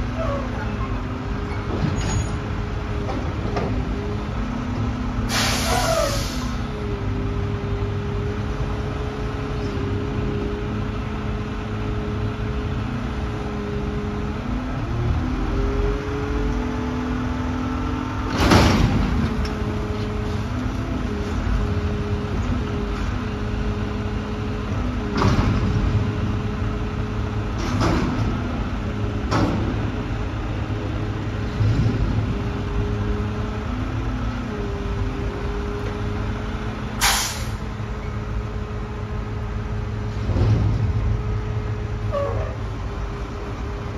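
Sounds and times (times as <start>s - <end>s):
diesel engine revving: 0.0s - 43.9s
dumpster metal bangs: 18.3s - 19.3s.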